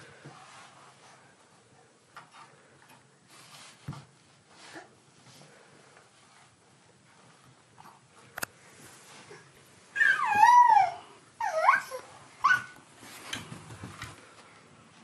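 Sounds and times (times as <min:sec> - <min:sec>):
baby squealing: 0:10.0 - 0:12.7.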